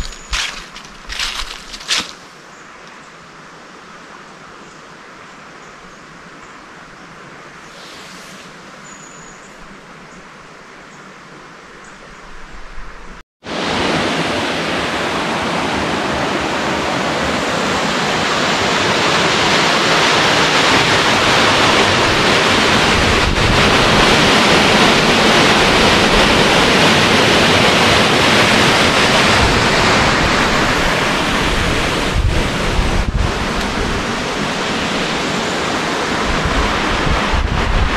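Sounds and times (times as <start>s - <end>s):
outdoor ambience: 0.0s - 37.9s
water rushing: 13.4s - 37.9s.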